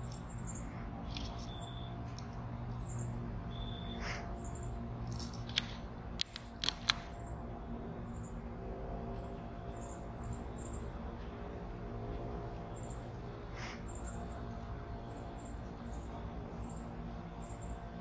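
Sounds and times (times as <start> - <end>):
steady low hum: 0.0 - 18.0
sharp chip-like clicks: 5.0 - 7.1.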